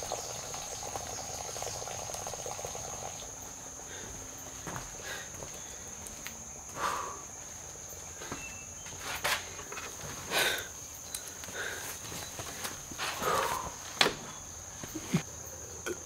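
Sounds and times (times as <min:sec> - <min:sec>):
insects droning: 0:00.0 - 0:16.0
footsteps on dirt: 0:03.9 - 0:10.4, 0:11.3 - 0:15.2.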